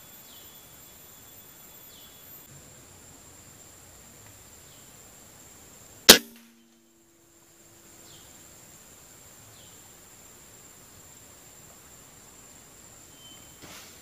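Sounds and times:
high insect drone: 0.0 - 14.0
air rifle shot: 6.1 - 6.5.

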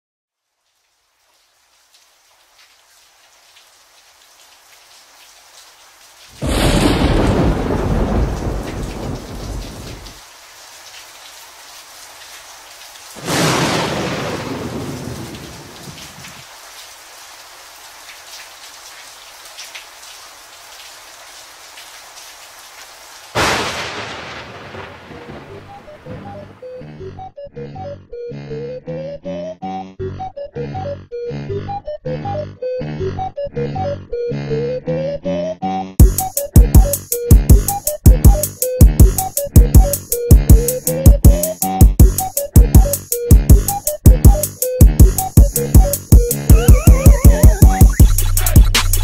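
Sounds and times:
steady rain: 0.3 - 26.8, 36.0 - 49.0
thunderclaps rumbling: 6.4 - 10.2, 13.2 - 16.4, 23.4 - 26.6.

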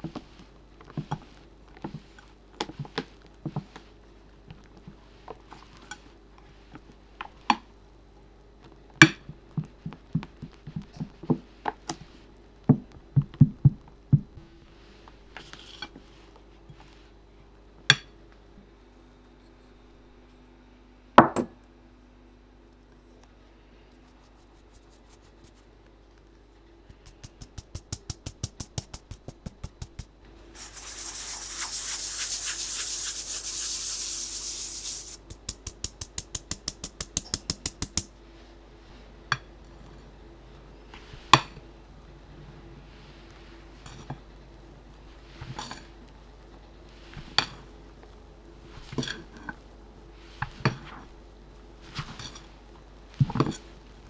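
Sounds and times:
flour sifting hiss: 14.6 - 17.2, 24.0 - 25.7, 26.9 - 39.1.

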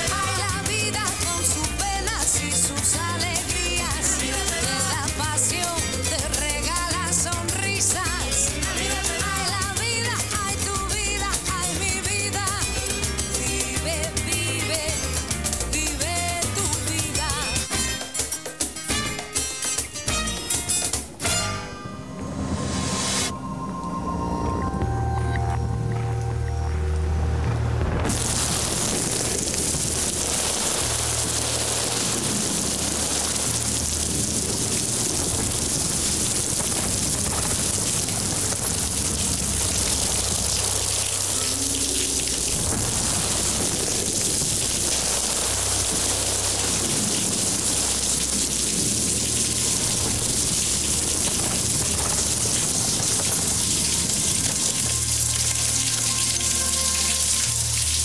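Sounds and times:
heavy rain: 0.0 - 17.7, 25.6 - 58.0
low music drone: 22.0 - 29.0.

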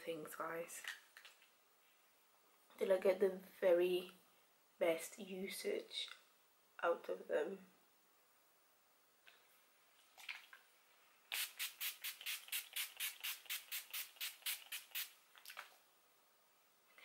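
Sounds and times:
spray bottle hissing sprays: 11.3 - 15.2.

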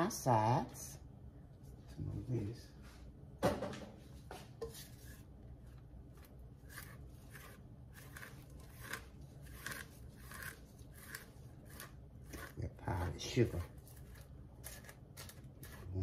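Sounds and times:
spatula scraping mixing bowl: 4.6 - 16.0.

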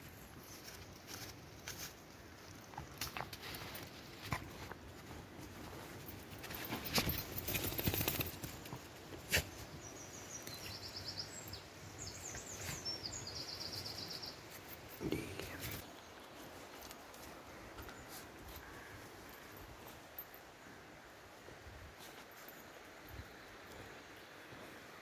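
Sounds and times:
rustling: 0.0 - 9.7
songbird singing: 6.9 - 20.4.

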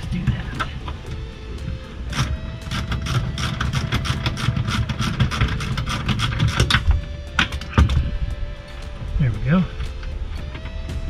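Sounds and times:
ratchet wrench clicking: 2.1 - 6.9.

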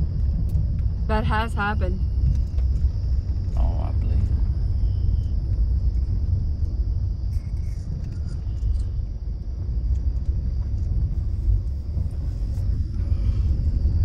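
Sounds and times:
car driving on unpaved road: 0.0 - 14.0.

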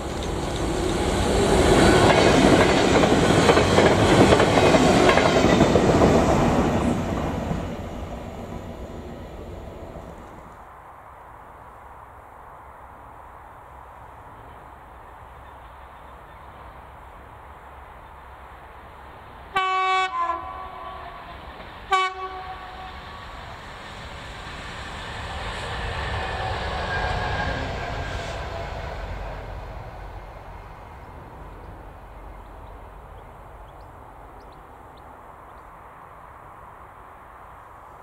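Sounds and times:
train running past: 0.0 - 10.6, 14.4 - 36.6
diesel locomotive horn: 19.5 - 23.4.

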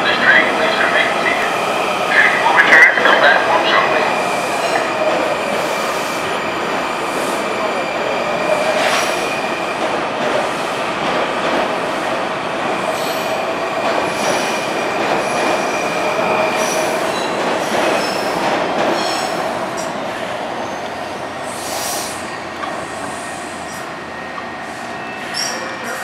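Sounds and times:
steel wheels rolling on rail: 0.0 - 26.0
whistling wheel squeal: 24.9 - 26.0.

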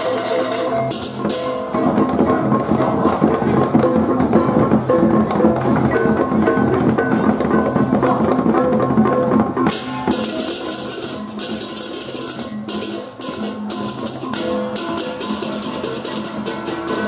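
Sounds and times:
drums and hand gongs: 0.0 - 17.0.

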